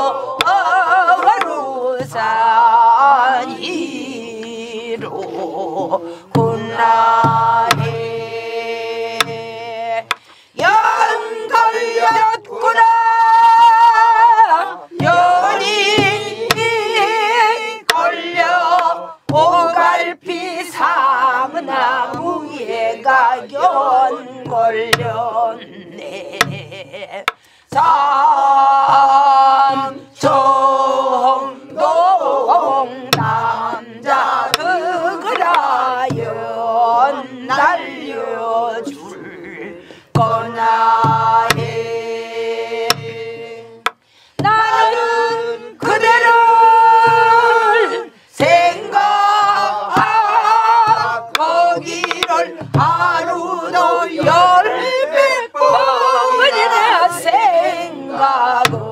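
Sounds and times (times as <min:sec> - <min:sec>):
woman singing folk song: 0:00.0 - 0:58.9
barrel drums beating: 0:06.3 - 0:20.0, 0:24.3 - 0:25.4, 0:26.3 - 0:36.8, 0:40.1 - 0:47.8, 0:48.4 - 0:54.8, 0:58.6 - 0:58.9.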